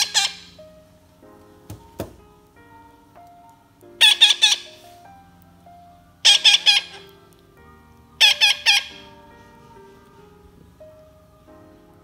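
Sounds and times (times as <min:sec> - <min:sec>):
parrot chicks squawking: 0:00.0 - 0:00.6, 0:04.0 - 0:04.8, 0:06.2 - 0:07.2, 0:08.2 - 0:09.1
faint background music: 0:00.0 - 0:12.0.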